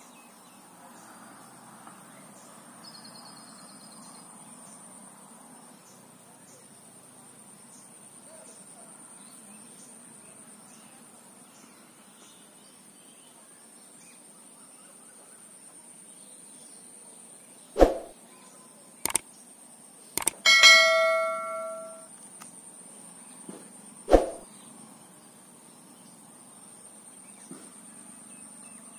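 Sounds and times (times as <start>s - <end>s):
mouse clicks: 20.2s - 20.4s
bell ding: 20.5s - 22.1s.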